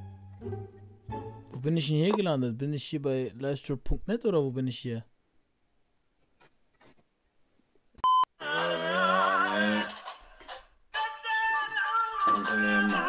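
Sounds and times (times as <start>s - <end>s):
person singing with wavering pitch: 11.0s - 13.0s.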